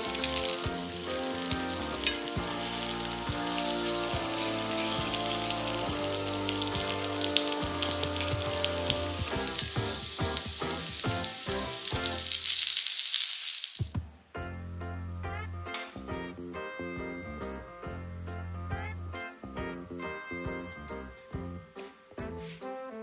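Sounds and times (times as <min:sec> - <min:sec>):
gentle background music: 0:00.0 - 0:12.7, 0:14.3 - 0:23.0
food sizzling in oil: 0:00.0 - 0:13.9.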